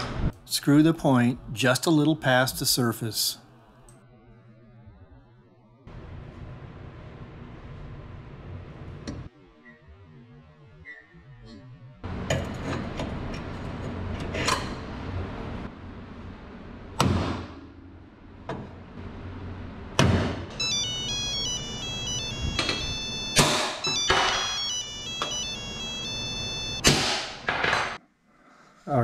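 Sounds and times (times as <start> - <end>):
electronic ringtone melody: 20.6 - 26.8.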